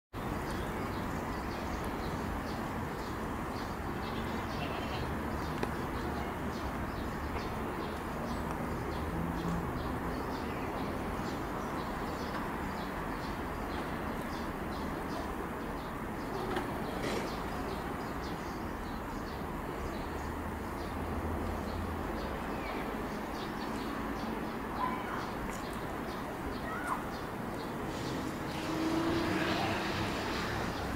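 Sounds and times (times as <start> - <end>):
small birds chirping: 0.2 - 30.9.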